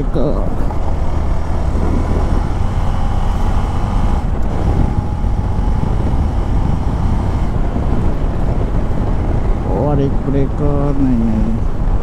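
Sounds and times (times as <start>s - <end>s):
wind on microphone: 0.0s - 12.0s
motorcycle engine running: 0.5s - 9.7s.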